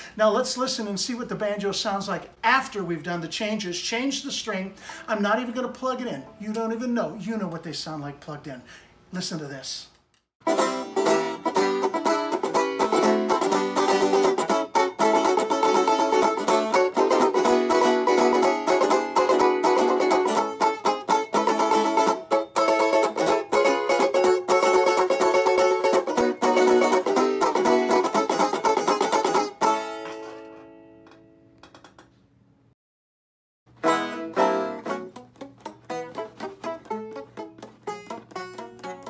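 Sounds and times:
banjo fast picking: 0:10.4 - 0:30.5, 0:33.8 - 0:39.0.

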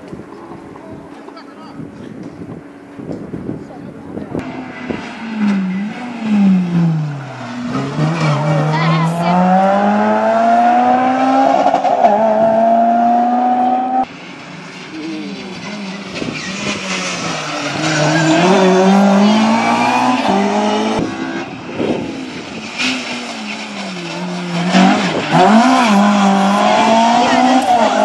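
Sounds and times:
rally car engines revving: 0:04.1 - 0:28.0.

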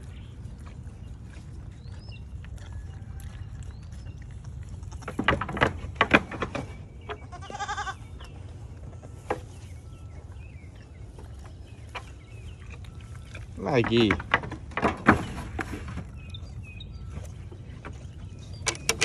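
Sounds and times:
sharp knocks and crunches: 0:04.7 - 0:07.6, 0:11.2 - 0:19.0
goat bleating: 0:07.2 - 0:08.1.

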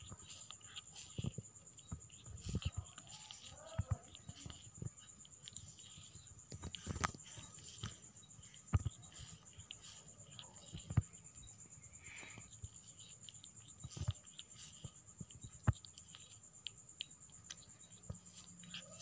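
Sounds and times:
faint high-pitched whine: 0:00.0 - 0:19.0
kitten licking its fur: 0:00.0 - 0:19.0.

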